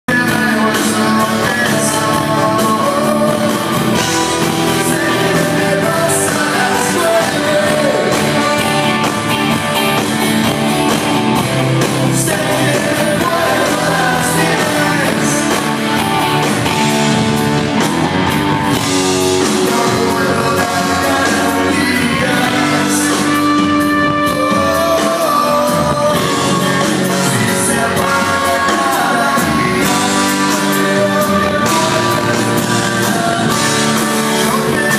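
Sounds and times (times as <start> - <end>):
vocals: 0.0 - 17.6, 18.7 - 34.9
rock band with horns playing: 0.1 - 34.9.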